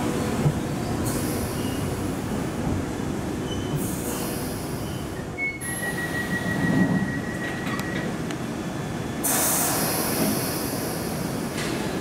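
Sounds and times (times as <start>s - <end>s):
train wheels rumbling on rails: 0.0s - 12.0s
high wheel squeal: 3.4s - 7.9s.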